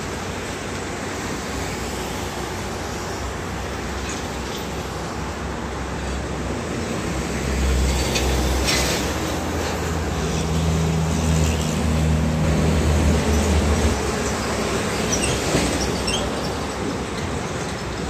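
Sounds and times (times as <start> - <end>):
heavy trucks passing: 0.0 - 18.0
steady traffic noise: 0.0 - 18.0.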